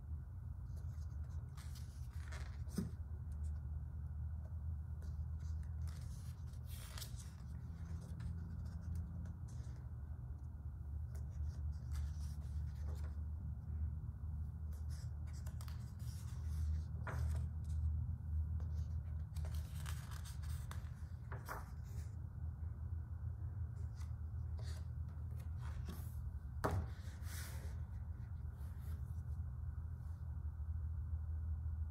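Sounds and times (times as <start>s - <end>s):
steady low hum: 0.0s - 31.9s
book pages turning: 0.6s - 3.7s, 5.0s - 10.0s, 11.0s - 13.3s, 14.7s - 22.3s, 23.6s - 29.2s.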